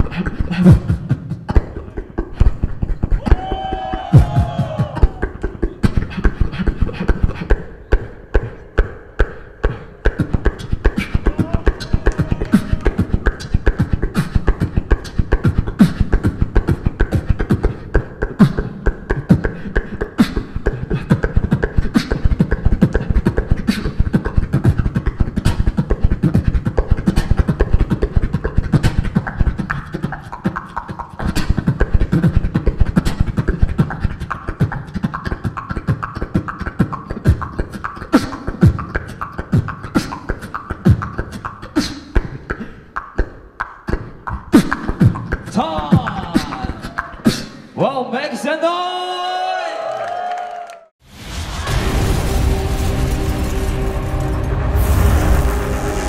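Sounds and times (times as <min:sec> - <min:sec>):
beatbox through microphone: 0:00.0 - 0:48.2.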